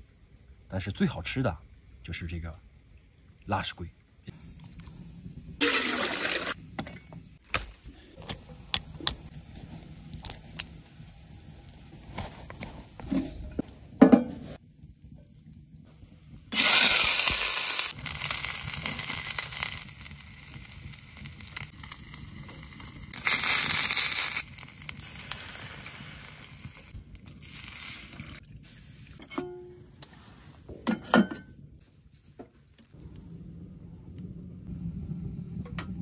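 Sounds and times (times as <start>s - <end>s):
fish sizzling in hot oil: 4.4s - 7.4s, 16.5s - 29.2s.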